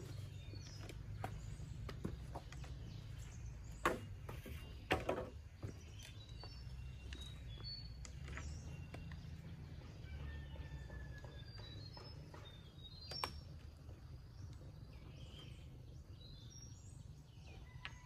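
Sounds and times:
small birds chirping: 0.0 - 18.0
bamboo poles knocking together: 3.8 - 5.8.

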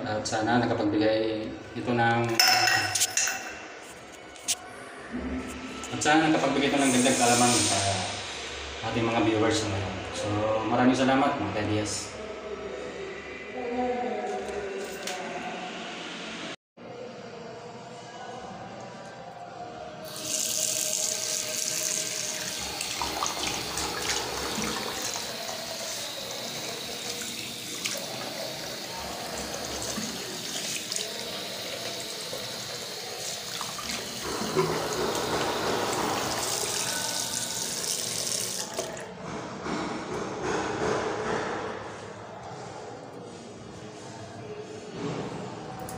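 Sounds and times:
tap water running into basin: 20.0 - 39.1.

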